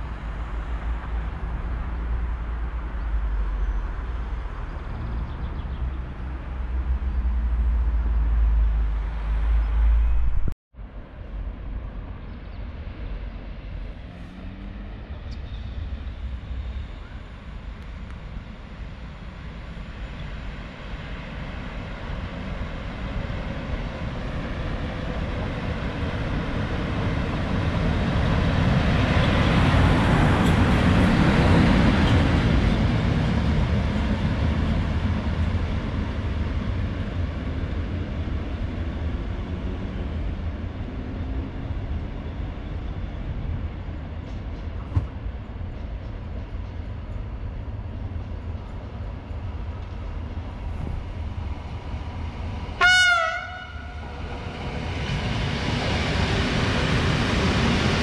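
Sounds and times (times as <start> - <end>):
electric locomotive passing: 5.8 - 58.0.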